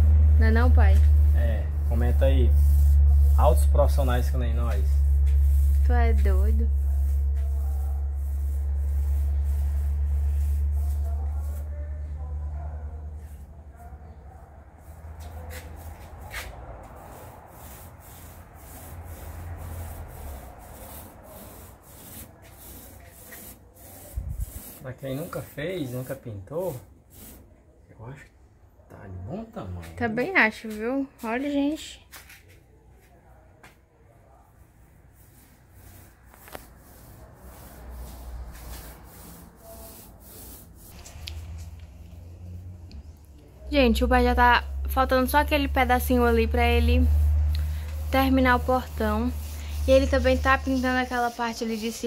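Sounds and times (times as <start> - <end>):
low steady hum: 0.0 - 13.5
paint brush rubbing strokes: 0.5 - 27.6, 34.3 - 52.0.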